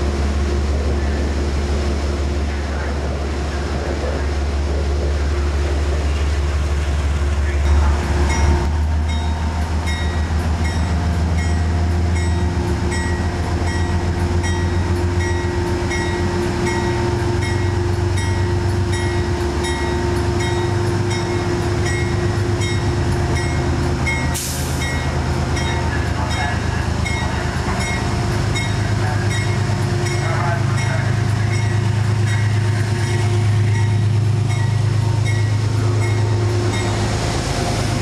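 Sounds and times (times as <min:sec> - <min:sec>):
diesel locomotive engine: 0:00.0 - 0:38.0
locomotive bell ringing: 0:07.5 - 0:37.1.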